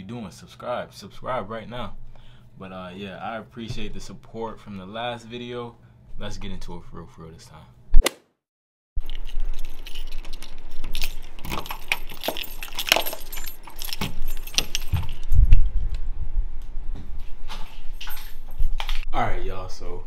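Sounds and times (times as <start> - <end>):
key working a deadbolt lock: 9.0 - 15.7
keys jangling: 9.0 - 15.7, 17.5 - 19.1.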